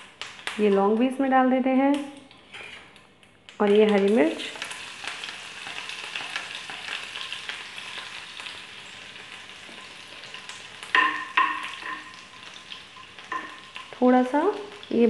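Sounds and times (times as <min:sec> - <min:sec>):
chilli sizzling in hot oil: 0:00.0 - 0:02.8, 0:03.5 - 0:15.0
metal spoon scraping pan: 0:02.3 - 0:02.9.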